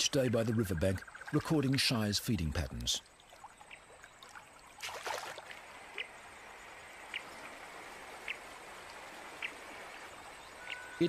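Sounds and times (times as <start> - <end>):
river water trickling: 0.0 - 11.0
rush of water: 3.0 - 11.0
faint high chirps: 9.4 - 11.0.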